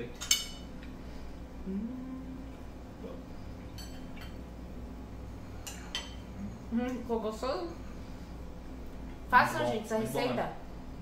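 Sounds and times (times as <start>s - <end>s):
low room hum: 0.0s - 11.0s
person humming: 1.6s - 2.7s.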